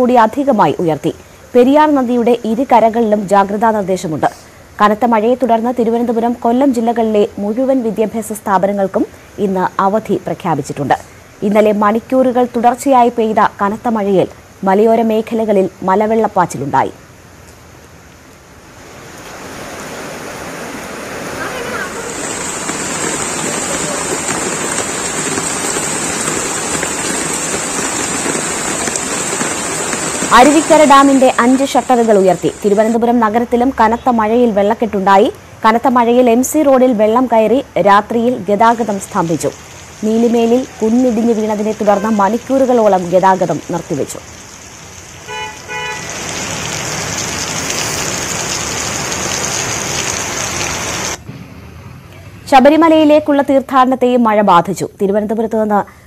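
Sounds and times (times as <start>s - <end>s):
heavy rain pouring: 0.0s - 51.3s
running floodwater: 18.5s - 33.4s, 36.1s - 51.2s
vehicle horn beeps: 45.3s - 46.1s.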